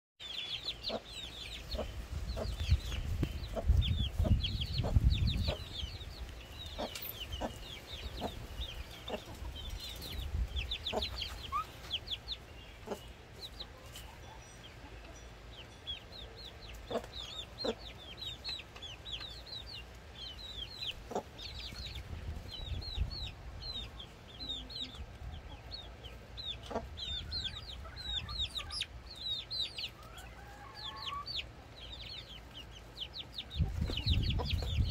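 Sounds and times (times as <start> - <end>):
chicks peeping: 0.2 - 34.9.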